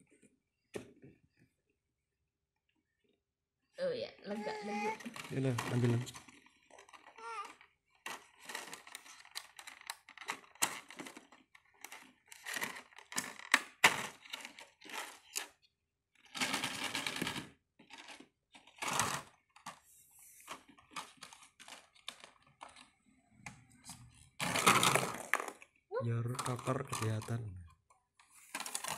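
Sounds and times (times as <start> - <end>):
plastic balls clacking: 4.5 - 15.6, 16.2 - 19.8, 23.9 - 27.5, 28.5 - 28.9.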